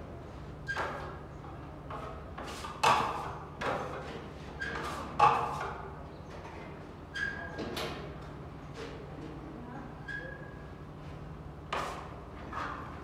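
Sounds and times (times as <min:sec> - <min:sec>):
trowel squeak: 0:07.1 - 0:07.5
trowel scraping putty on wall: 0:11.7 - 0:12.9.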